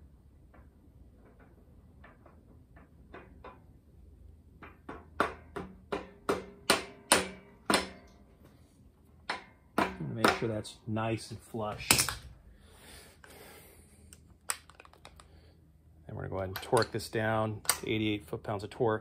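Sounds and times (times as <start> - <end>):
hammer tapping metal: 4.6 - 8.2.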